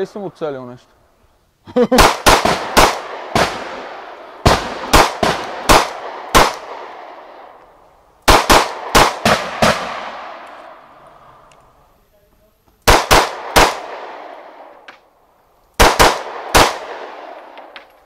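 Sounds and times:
pistol shots echoing: 2.0s - 7.6s, 8.2s - 10.8s, 12.8s - 15.0s, 15.8s - 17.9s.

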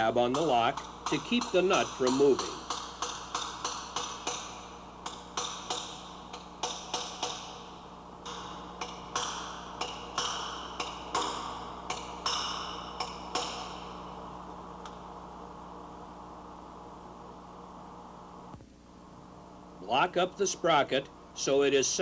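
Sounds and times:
hammer striking steel punch: 8.2s - 14.0s.

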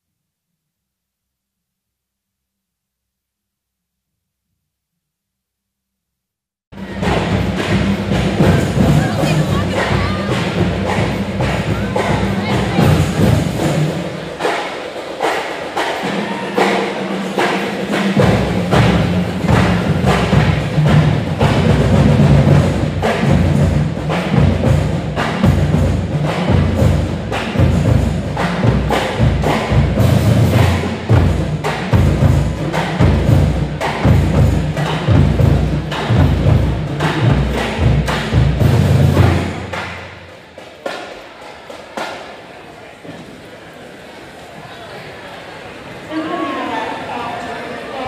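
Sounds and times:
marching bass drums: 6.8s - 14.5s, 17.8s - 39.8s
pep band playing: 6.8s - 42.4s.

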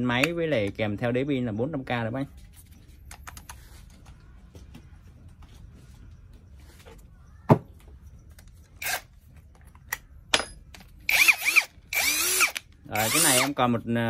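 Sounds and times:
knock on wooden workbench: 7.5s - 7.7s.

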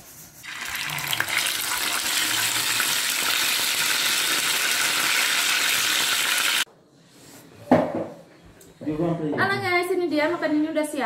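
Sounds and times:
chicken frying in oil: 0.5s - 6.7s.

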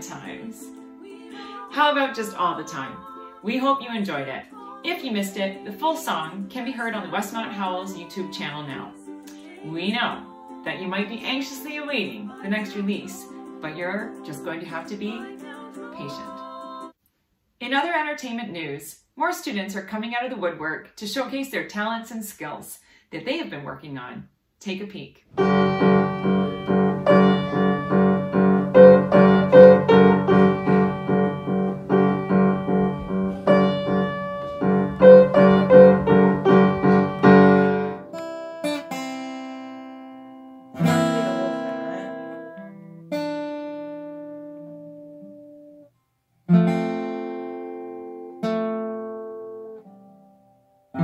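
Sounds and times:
upright piano playing: 25.4s - 38.3s, 40.8s - 43.0s
acoustic guitar chords: 25.4s - 45.8s, 46.5s - 51.0s.

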